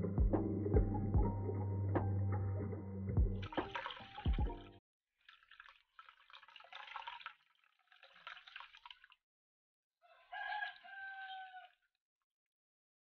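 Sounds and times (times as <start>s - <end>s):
liquid pouring into a bowl: 3.4s - 9.2s
rooster crowing: 10.0s - 11.8s.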